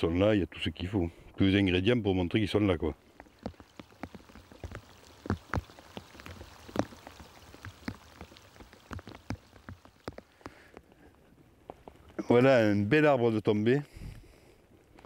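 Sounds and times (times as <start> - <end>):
raindrops plopping on water: 2.8 - 11.1.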